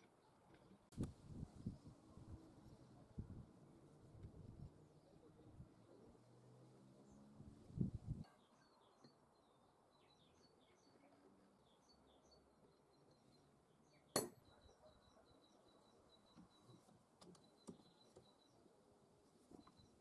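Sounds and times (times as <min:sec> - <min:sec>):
small birds calling faintly: 0:00.0 - 0:20.0
sharp metallic clink: 0:14.2 - 0:14.6.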